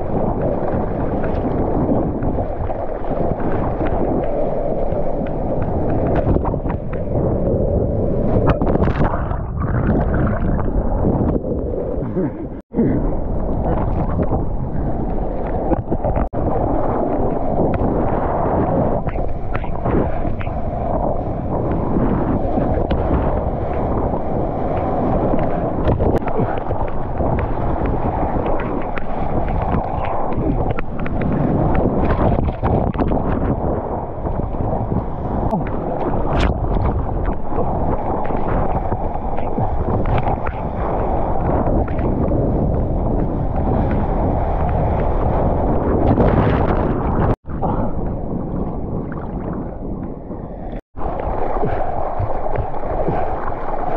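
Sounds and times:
water rushing: 0:00.0 - 0:53.9
wind buffeting microphone: 0:00.0 - 0:53.9.

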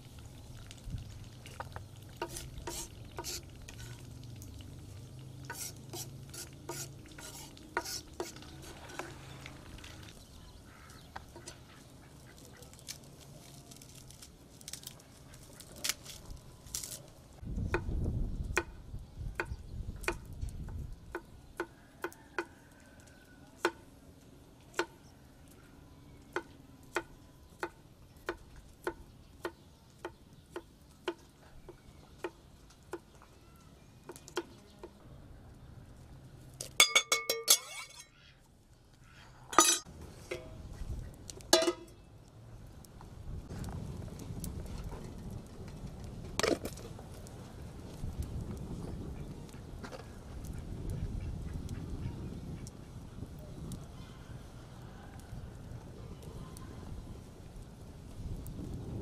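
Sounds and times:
metal pot clanking: 0:36.8 - 0:38.1, 0:39.6 - 0:40.6, 0:41.5 - 0:42.0.

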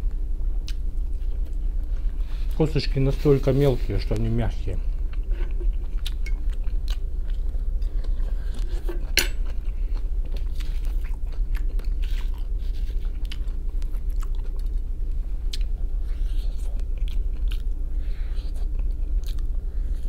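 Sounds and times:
steady low hum: 0:00.0 - 0:20.0
close-up chewing: 0:04.1 - 0:20.0.

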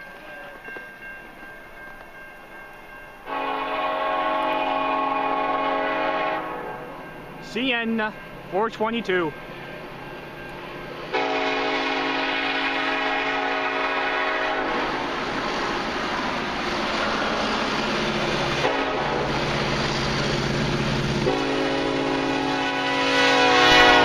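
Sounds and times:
locomotive air horn blasts: 0:03.3 - 0:07.0, 0:11.1 - 0:14.8, 0:18.6 - 0:19.3, 0:21.2 - 0:24.0
diesel locomotive engines running: 0:03.3 - 0:24.0.

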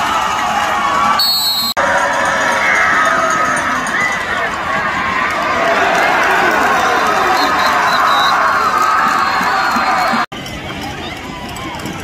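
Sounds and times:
stadium crowd cheering and shouting: 0:00.0 - 0:12.0.

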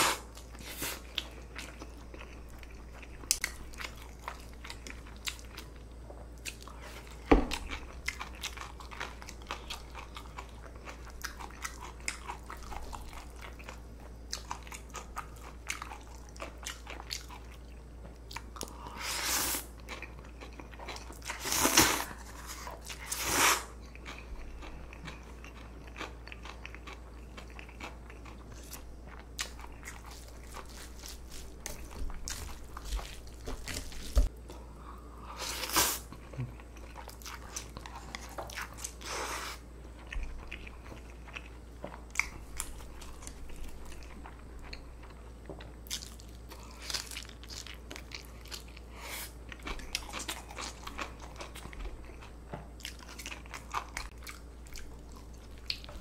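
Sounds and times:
low steady hum: 0:00.0 - 0:56.0
crunchy bites and chewing: 0:35.5 - 0:56.0.

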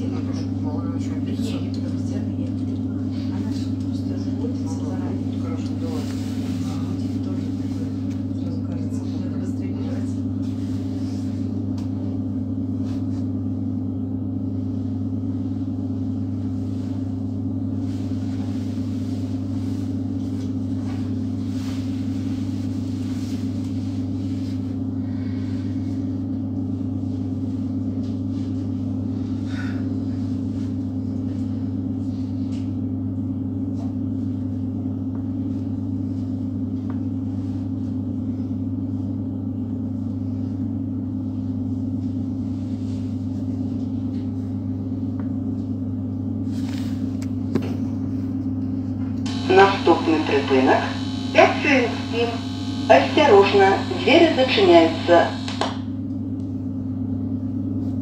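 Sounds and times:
electric train equipment humming: 0:49.0 - 0:56.3.

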